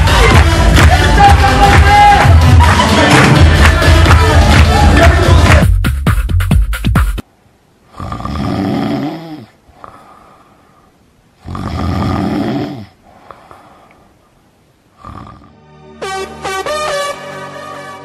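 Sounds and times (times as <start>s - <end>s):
person snoring: 7.9s - 10.6s, 11.4s - 13.9s, 15.0s - 15.7s.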